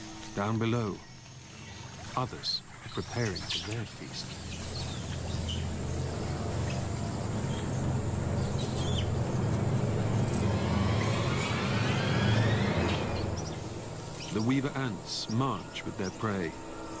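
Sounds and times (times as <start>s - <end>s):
birds chirping: 0.0s - 17.0s
low steady drone: 0.0s - 17.0s
rising whine: 4.4s - 17.0s.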